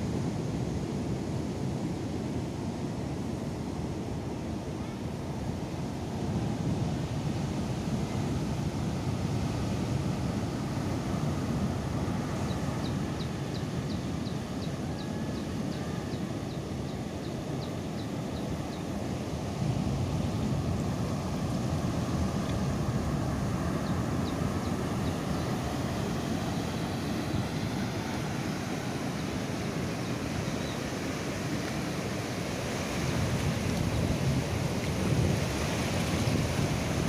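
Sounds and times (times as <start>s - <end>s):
ocean surf breaking: 18.6s - 37.0s
wind buffeting microphone: 32.3s - 37.0s.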